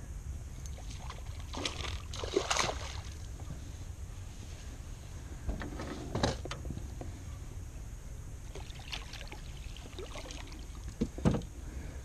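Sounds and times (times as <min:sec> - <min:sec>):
steady low rumble: 0:00.0 - 0:12.0
water splashing: 0:00.7 - 0:03.3, 0:08.5 - 0:11.0
knocks against boat side: 0:11.0 - 0:11.5.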